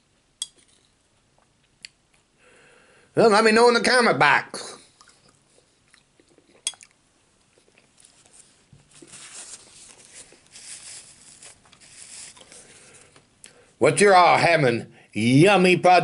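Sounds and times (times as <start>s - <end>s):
spoon clinking against bowl: 0.4s - 0.8s
soft chewing: 0.5s - 2.4s, 4.8s - 13.7s
paper napkin rustling: 8.0s - 13.1s.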